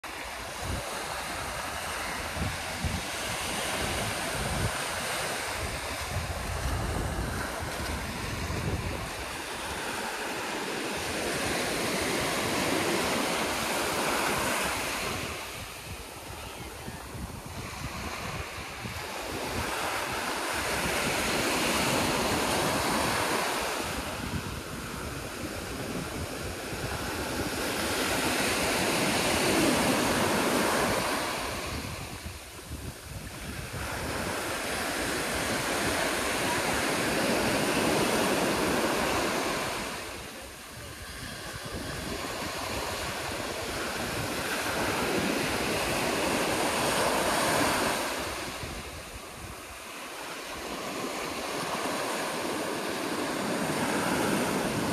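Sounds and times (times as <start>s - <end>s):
surf washing up a beach: 0.0s - 54.9s
wind on microphone: 0.0s - 54.9s.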